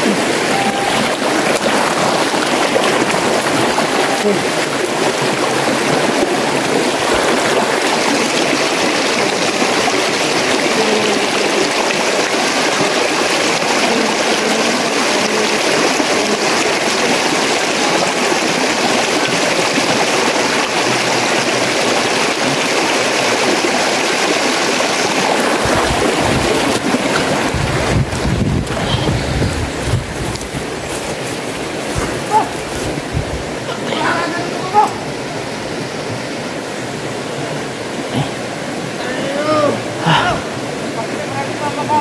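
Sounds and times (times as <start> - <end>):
river flowing over stones: 0.0 - 42.0
wind buffeting microphone: 25.2 - 33.6.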